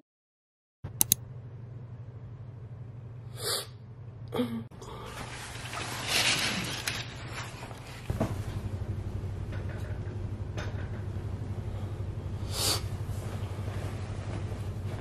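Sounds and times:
pulsing mechanical hum: 0.9 - 15.0
breathy sound: 3.4 - 5.3
short rustle: 5.1 - 8.1.

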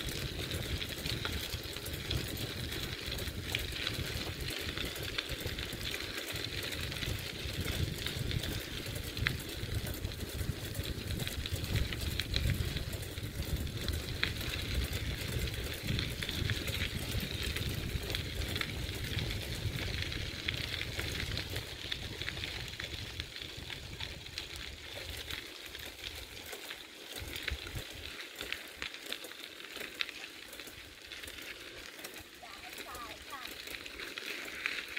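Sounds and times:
wind buffeting microphone: 0.0 - 25.8
bicycle tyres crunching gravel: 0.0 - 34.9
small clicks and rattles: 0.0 - 34.9.

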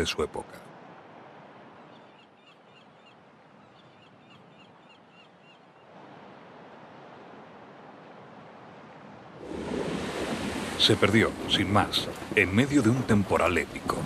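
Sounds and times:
steady outdoor hiss: 0.0 - 14.0
small birds chirping: 1.8 - 5.9.

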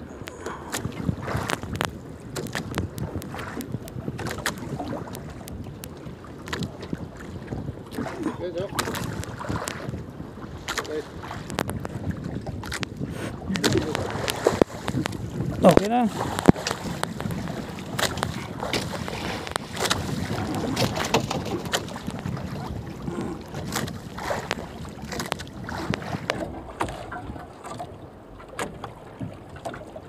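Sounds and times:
wind and water hiss: 0.0 - 30.0.

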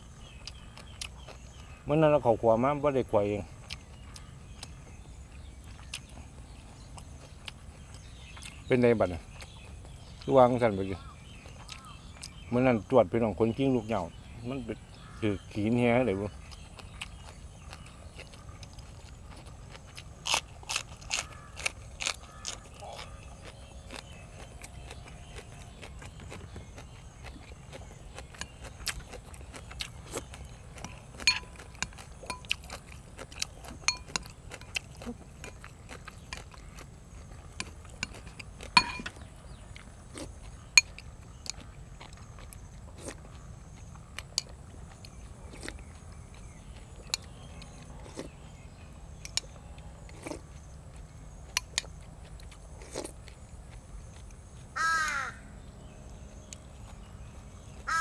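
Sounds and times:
sharp clicks and smacks of eating: 0.3 - 1.8, 3.6 - 4.8, 5.4 - 12.5, 16.0 - 48.6, 49.2 - 55.2
crow cawing: 21.2 - 23.2, 54.8 - 55.6.

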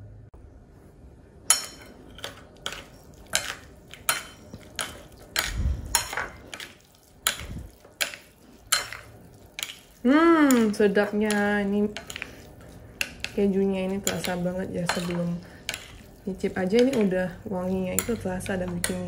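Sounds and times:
utensils clinking on ceramic plate: 1.5 - 19.0.

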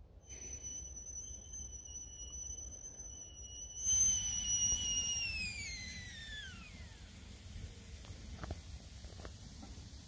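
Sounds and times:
kettle whistling: 0.2 - 10.0
rush of steam: 7.0 - 10.0.

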